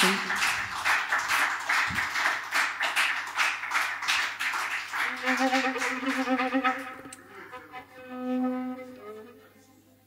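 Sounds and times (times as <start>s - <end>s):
audience clapping: 0.0s - 7.2s.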